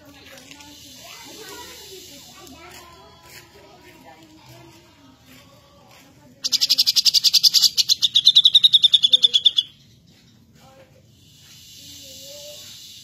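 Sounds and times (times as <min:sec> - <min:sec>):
bird singing a fast trill: 0:06.4 - 0:10.4.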